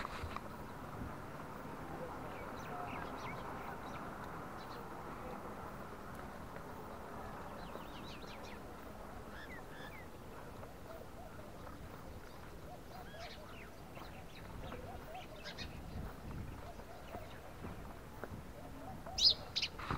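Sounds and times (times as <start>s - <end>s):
birds chirping: 0.0s - 19.9s
wind over microphone: 6.8s - 19.9s.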